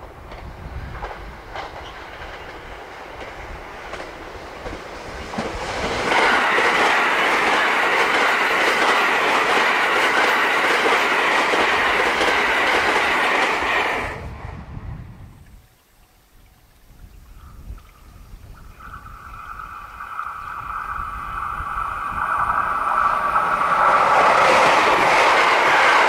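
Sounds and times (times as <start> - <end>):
train wheels clattering over rail joints: 0.0 - 14.1.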